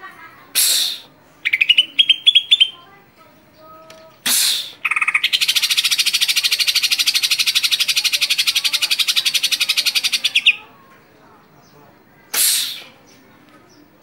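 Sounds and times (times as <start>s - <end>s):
bird singing chattering trill: 0.7s - 2.9s, 3.5s - 10.7s.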